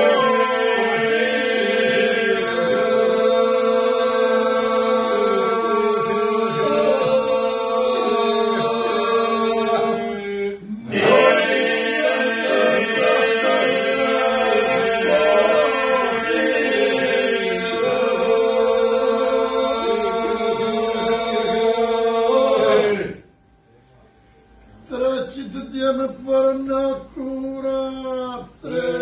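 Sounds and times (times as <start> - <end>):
men singing polyphonic folk song: 0.0 - 23.1.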